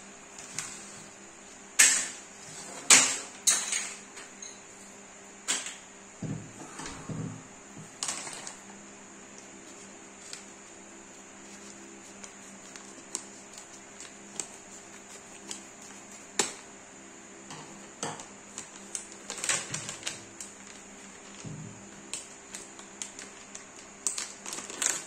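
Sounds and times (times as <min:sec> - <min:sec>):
plastic pouch crinkling: 0:22.4 - 0:25.0.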